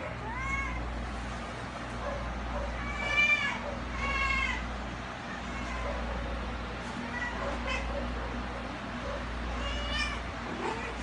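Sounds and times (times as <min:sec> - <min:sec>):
cat meowing: 0:00.1 - 0:00.9, 0:02.7 - 0:04.7, 0:05.3 - 0:06.2, 0:07.0 - 0:08.0, 0:09.5 - 0:11.0.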